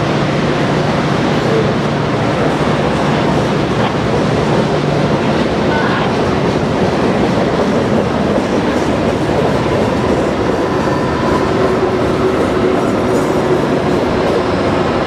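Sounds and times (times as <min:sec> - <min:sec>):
steel wheels rumbling on rails: 0:00.0 - 0:15.0.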